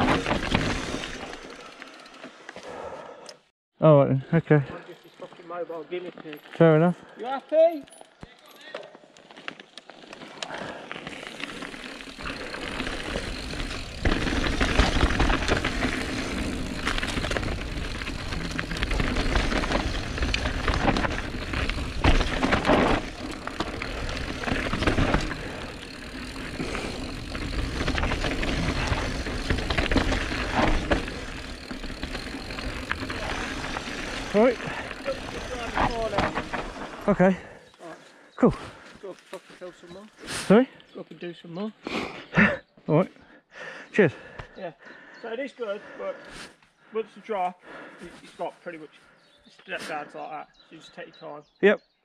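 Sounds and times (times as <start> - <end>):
bike rattling on dirt trail: 0.0 - 3.0, 4.6 - 40.5.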